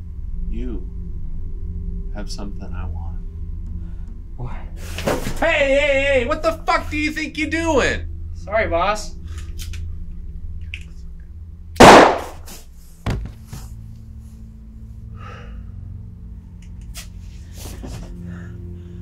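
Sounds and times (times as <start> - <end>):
low steady hum: 0.0 - 19.0
loud sharp impact: 11.8 - 12.6.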